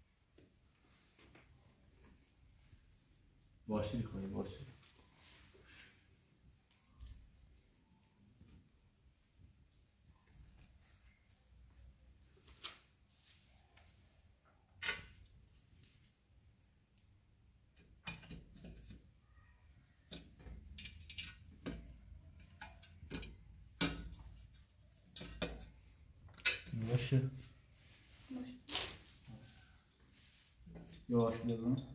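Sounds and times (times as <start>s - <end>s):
metallic clicks and taps: 20.1s - 25.7s.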